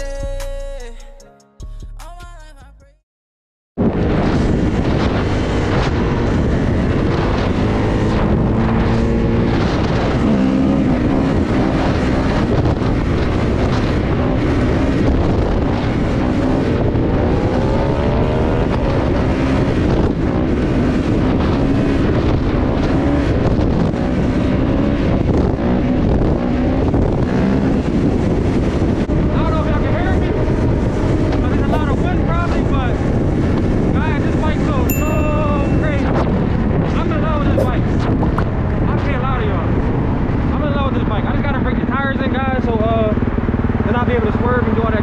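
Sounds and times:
wind noise on microphone: 3.8 - 45.0
dirt bike engine revving: 4.0 - 28.0.

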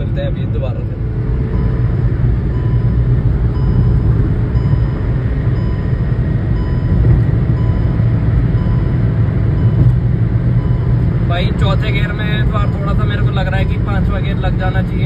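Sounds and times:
car cabin road drone: 0.0 - 15.0
faint beep: 1.5 - 10.0, 10.6 - 13.0.

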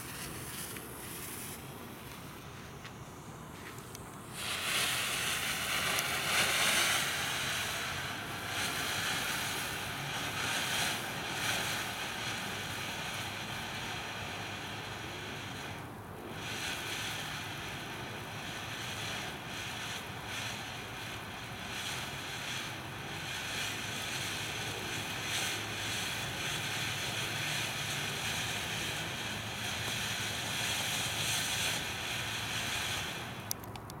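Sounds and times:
firework fountain hissing: 0.0 - 34.0
sharp firework cracks: 0.0 - 34.0.

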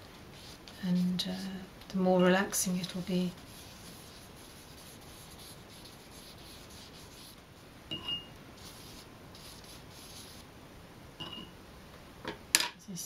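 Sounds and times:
wet paintbrush scrubbing paper: 0.4 - 1.5, 2.7 - 7.4, 8.6 - 10.4.

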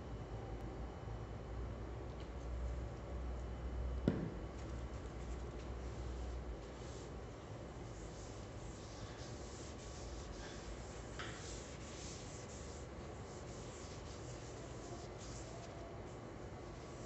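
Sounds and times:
paper towel rubbing on wood: 5.2 - 17.0.

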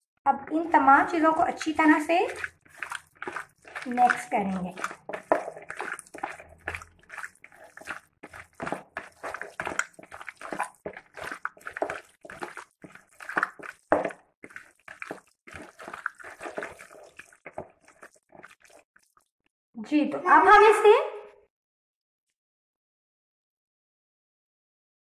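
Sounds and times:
hand squelching raw chicken: 1.0 - 19.3.

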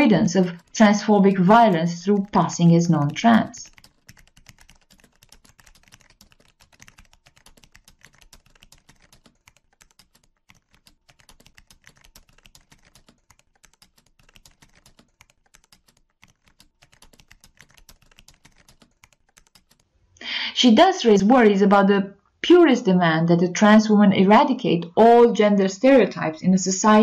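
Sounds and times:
rapid keyboard typing: 0.0 - 19.9.

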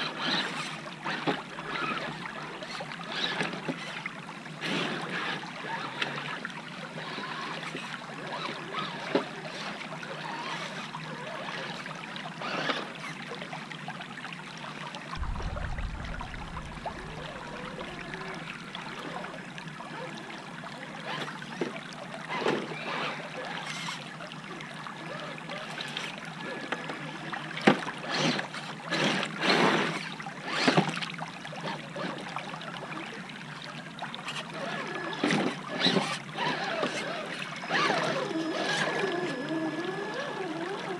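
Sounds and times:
toy truck splashing through water: 0.0 - 4.0, 4.6 - 13.3, 16.4 - 24.0, 25.0 - 32.2, 34.2 - 40.9
creek running over rocks: 15.2 - 30.9, 33.0 - 40.9.

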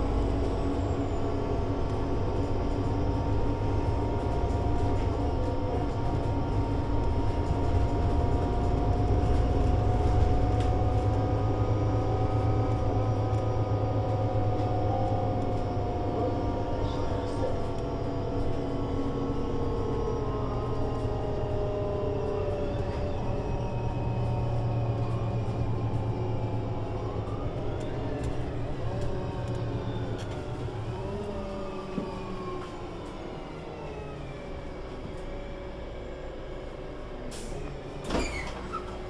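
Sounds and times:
bus diesel engine running: 0.0 - 39.0.

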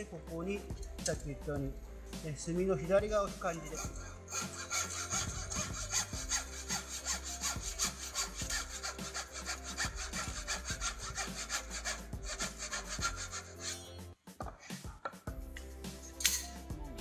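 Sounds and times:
hand saw cutting wood: 3.6 - 14.0.

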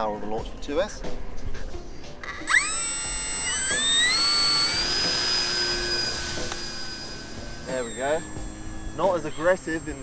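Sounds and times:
electric motor and propeller whine: 2.2 - 10.0.

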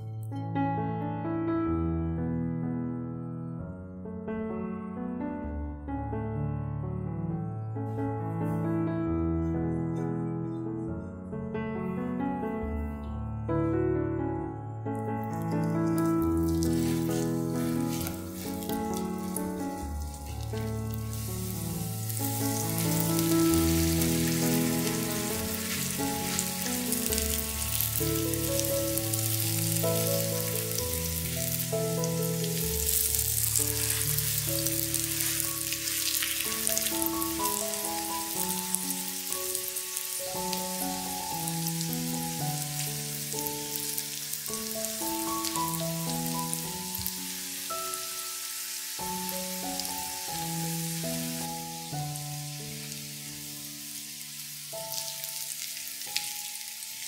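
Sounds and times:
gentle background music: 0.0 - 57.0
food sizzling in a pan: 15.2 - 57.0.

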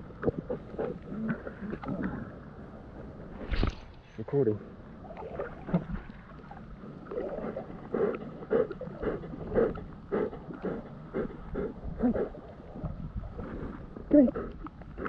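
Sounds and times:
river water splashing: 5.0 - 11.4.

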